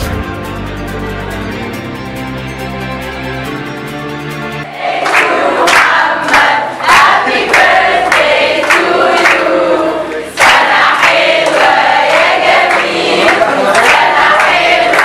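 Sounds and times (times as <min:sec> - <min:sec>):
crowd singing and chanting: 0:04.7 - 0:15.0
rhythmic clapping: 0:04.7 - 0:15.0.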